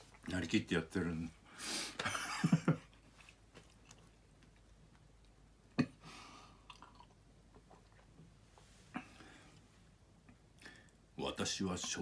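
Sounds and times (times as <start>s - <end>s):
man sipping from glass: 6.6s - 7.1s.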